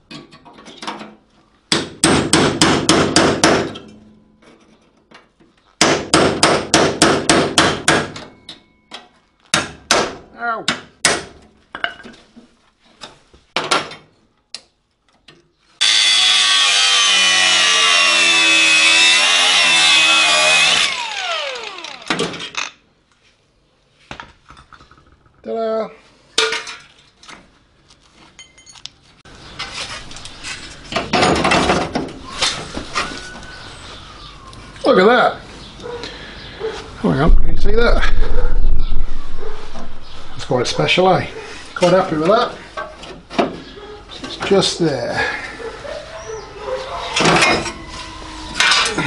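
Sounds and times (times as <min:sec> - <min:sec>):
power tool whining: 0:15.8 - 0:22.7.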